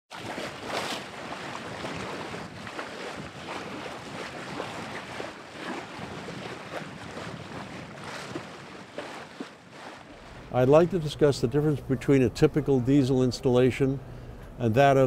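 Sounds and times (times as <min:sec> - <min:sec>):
water rushing along boat hull: 0:00.1 - 0:15.0
wind buffeting microphone: 0:00.2 - 0:11.5.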